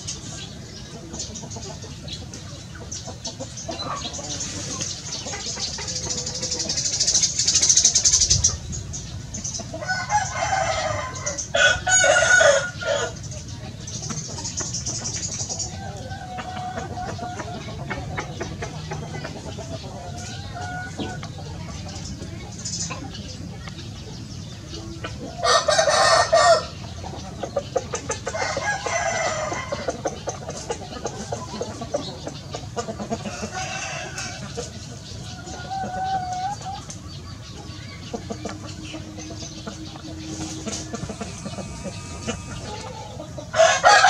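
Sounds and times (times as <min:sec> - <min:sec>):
sparrows chirping: 0:00.0 - 0:44.0
rooster crowing: 0:09.8 - 0:13.2, 0:25.4 - 0:26.7, 0:41.7 - 0:44.0.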